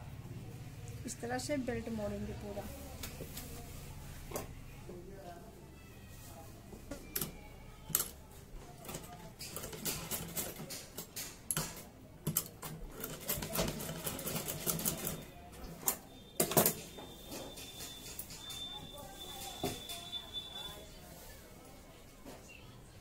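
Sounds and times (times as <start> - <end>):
sewing machine stitching: 8.8 - 15.3.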